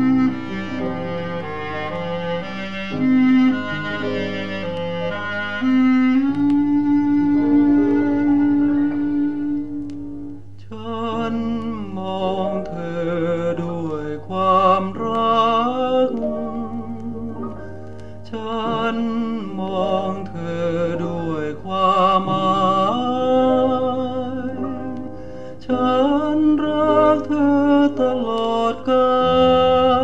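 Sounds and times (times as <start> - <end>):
vinyl record ballad: 0.0 - 30.0.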